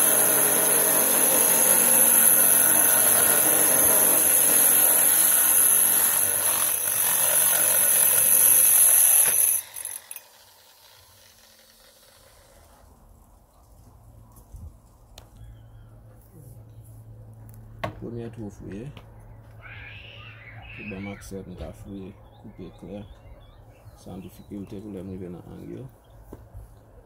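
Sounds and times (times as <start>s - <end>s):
grinder whining through stone: 0.0s - 12.9s.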